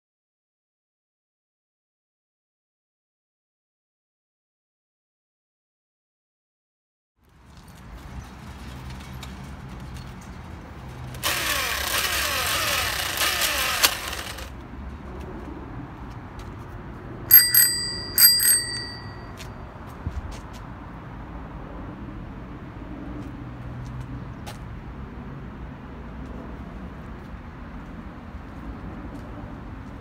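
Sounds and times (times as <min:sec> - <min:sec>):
bicycle bell dings: 0:17.3 - 0:19.5.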